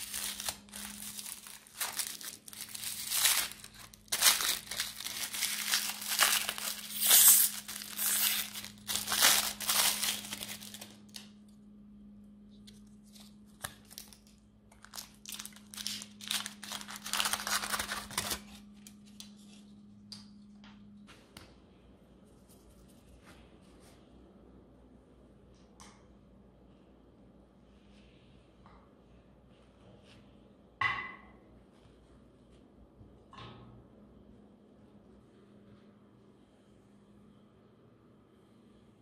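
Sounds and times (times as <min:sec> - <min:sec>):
foil wrapper crinkling and tearing: 0:00.0 - 0:11.3, 0:13.0 - 0:19.1.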